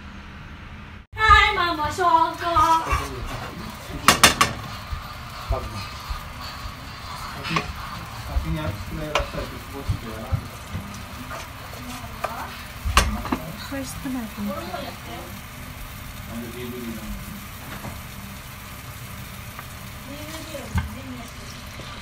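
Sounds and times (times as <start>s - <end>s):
oil sizzling in a frying pan: 1.2s - 22.0s
wooden spatula scraping pan: 1.3s - 15.0s
spatula knocking against pan: 4.0s - 5.1s, 12.2s - 13.5s.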